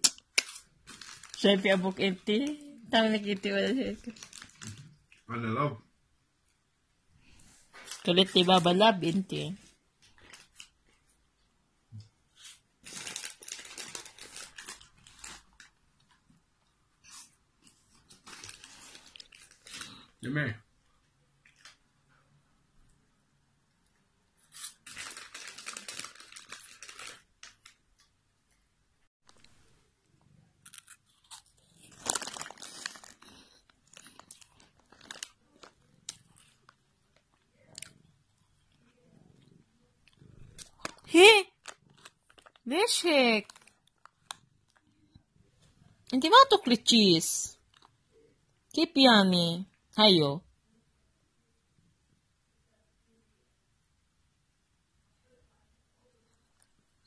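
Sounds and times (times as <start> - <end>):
packaging crinkling: 0.0 - 1.9, 4.0 - 5.0, 12.5 - 16.1, 17.9 - 20.0, 24.5 - 27.8, 30.6 - 37.9, 40.6 - 42.7, 43.4 - 44.8
cat crunching a snack: 30.5 - 42.6, 43.4 - 44.9.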